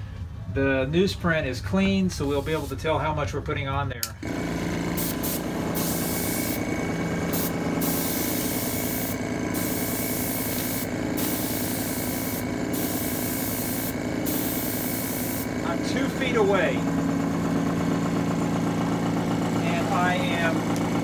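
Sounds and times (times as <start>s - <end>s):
compressor hum: 0.0s - 21.0s
airbrush spraying hiss: 2.2s - 2.8s, 5.0s - 6.7s, 7.3s - 15.6s.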